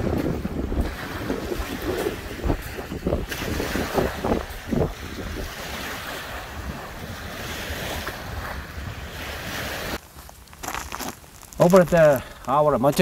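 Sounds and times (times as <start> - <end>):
small waves washing ashore: 0.0 - 10.0
wind on microphone: 0.0 - 10.0.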